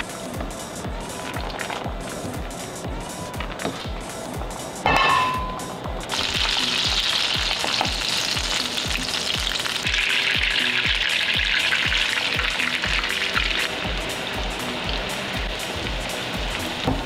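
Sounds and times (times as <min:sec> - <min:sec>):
background music with steady beat: 0:00.0 - 0:17.0
butter sizzling in frying pan: 0:06.1 - 0:17.0.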